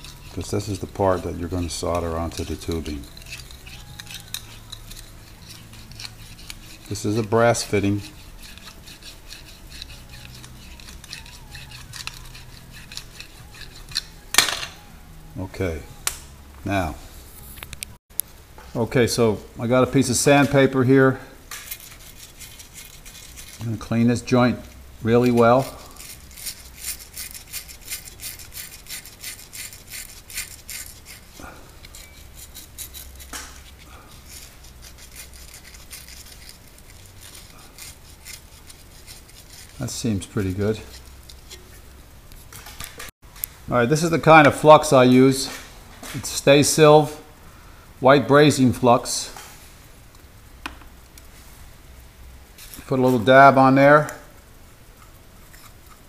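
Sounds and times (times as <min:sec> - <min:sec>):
sandpaper scrubbing copper tube: 0:00.0 - 0:14.4, 0:21.6 - 0:41.8
wire brush scratching metal: 0:00.0 - 0:17.8, 0:20.0 - 0:43.1, 0:54.9 - 0:56.0.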